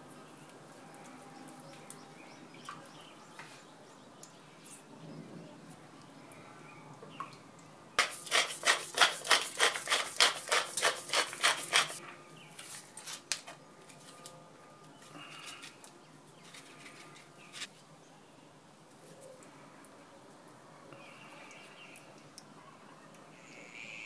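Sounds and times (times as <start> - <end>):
spice grinder rasping: 8.0 - 12.0
faint scrapes and ticks: 15.0 - 17.7.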